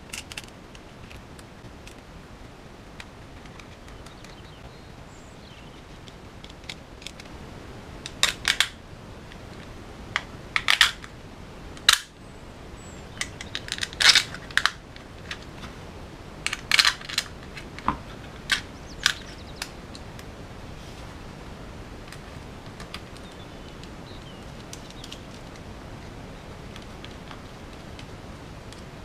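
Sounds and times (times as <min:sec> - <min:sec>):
plastic and metal parts clicking: 0:00.0 - 0:01.2.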